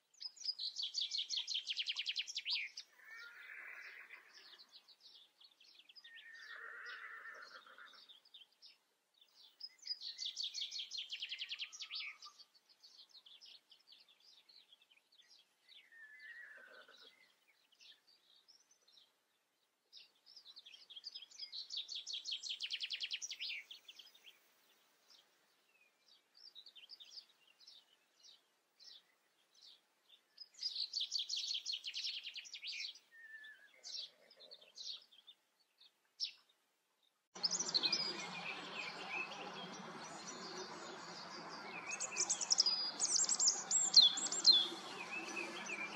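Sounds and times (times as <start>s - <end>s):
songbirds singing: 0.0s - 45.9s
outdoor ambience hiss: 36.7s - 45.9s.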